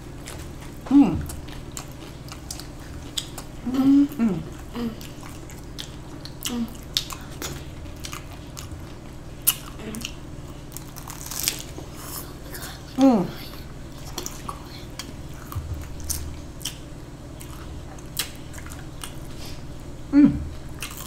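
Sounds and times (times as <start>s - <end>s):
crunchy chewing: 0.0s - 13.0s, 13.9s - 19.7s, 20.6s - 21.0s
person humming: 0.9s - 1.3s, 3.6s - 5.1s, 6.5s - 6.8s, 20.1s - 20.6s.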